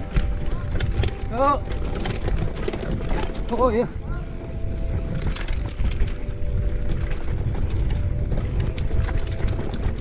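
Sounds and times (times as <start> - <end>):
bike rattling and knocking: 0.0 - 10.0
bike tyres on dirt: 0.0 - 10.0
wind rumbling on microphone: 0.0 - 10.0.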